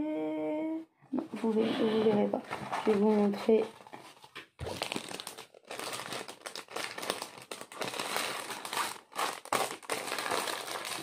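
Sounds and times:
plastic packaging crinkling: 0:02.6 - 0:11.0.

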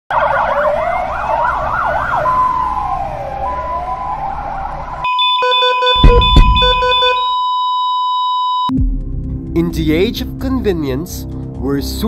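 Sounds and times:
siren wail: 0:00.1 - 0:08.7
siren yelp: 0:00.1 - 0:08.7
low traffic rumble: 0:00.2 - 0:05.1.

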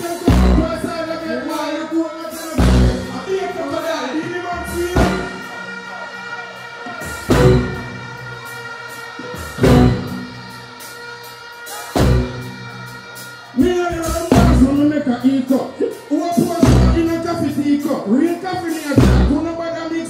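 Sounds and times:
keyboard chords: 0:00.0 - 0:20.0
person singing: 0:00.0 - 0:20.0
drum and bass hits: 0:02.6 - 0:03.3, 0:04.6 - 0:05.6, 0:07.0 - 0:08.2, 0:09.2 - 0:10.7, 0:13.6 - 0:14.8, 0:16.4 - 0:17.3, 0:19.0 - 0:19.4.

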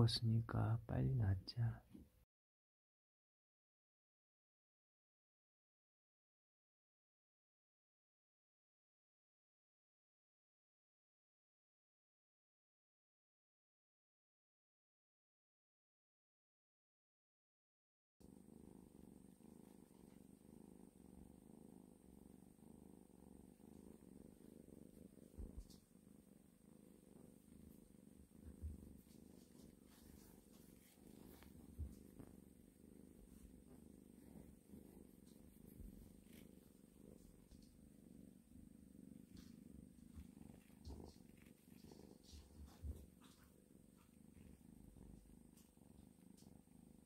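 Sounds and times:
kitten purring: 0:18.2 - 0:47.0.

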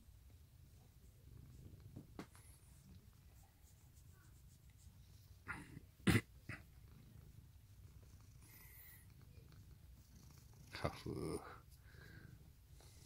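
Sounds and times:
cat purring: 0:00.3 - 0:13.0.

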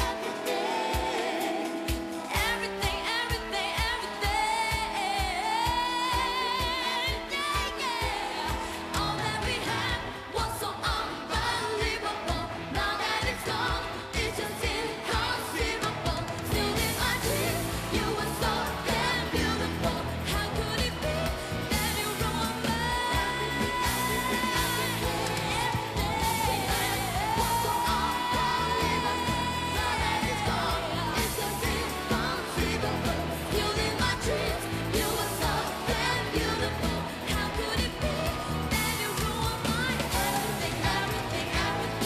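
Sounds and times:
bass: 0:00.0 - 0:42.0
woman singing with vibrato: 0:00.0 - 0:42.0
band playing steady beat: 0:10.8 - 0:42.0.

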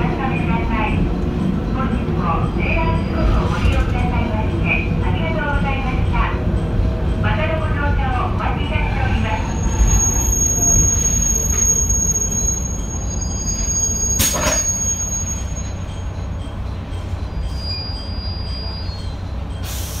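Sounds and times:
diesel train engine rumbling: 0:00.0 - 0:20.0.

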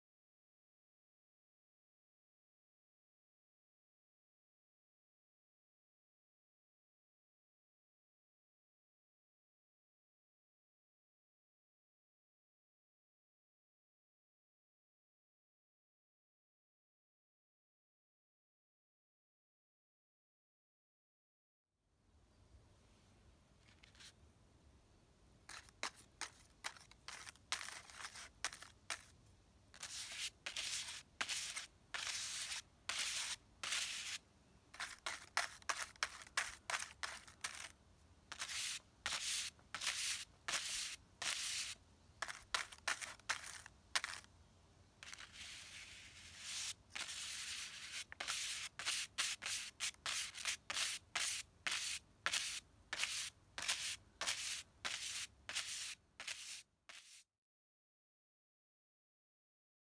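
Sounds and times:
brush swishing and dabbing on paper: 0:25.5 - 0:29.1, 0:29.7 - 0:34.2, 0:34.8 - 0:44.3, 0:45.0 - 0:57.3.

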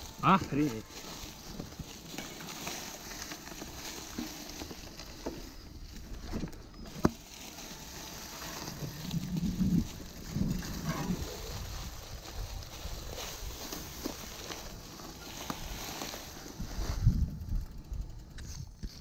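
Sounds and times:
tyres swishing through grass: 0:00.0 - 0:17.4
bike rattling over ground: 0:00.0 - 0:19.0.

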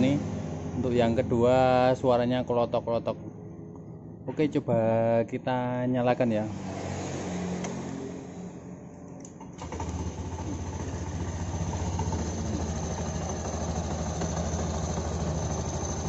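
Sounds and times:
scooter engine starting and idling: 0:09.4 - 0:16.0.

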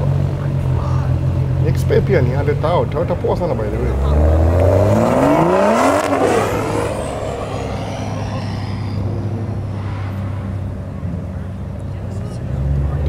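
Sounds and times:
car accelerating past: 0:03.7 - 0:13.0
low engine drone: 0:03.8 - 0:12.3.

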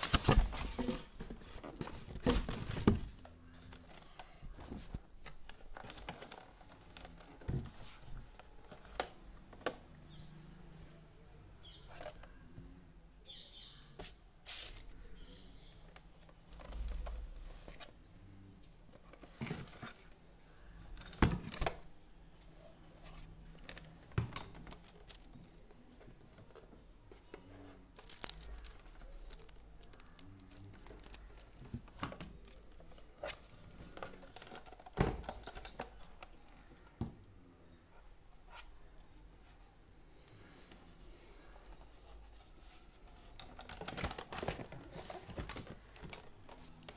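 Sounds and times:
plastic packaging crinkling: 0:27.9 - 0:33.0.

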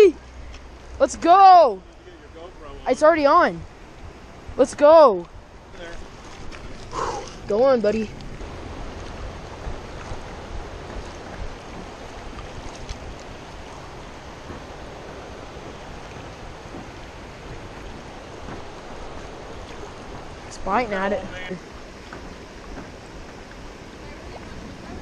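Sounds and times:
river running over rocks: 0:00.0 - 0:25.0
wind buffeting microphone: 0:02.4 - 0:25.0.

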